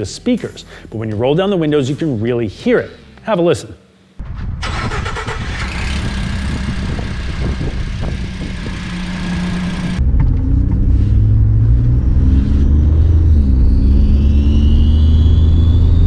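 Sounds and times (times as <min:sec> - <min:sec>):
exhaust chirping: 0:04.6 - 0:16.0
truck engine running: 0:04.7 - 0:13.6
engine accelerating from inside cab: 0:05.6 - 0:16.0.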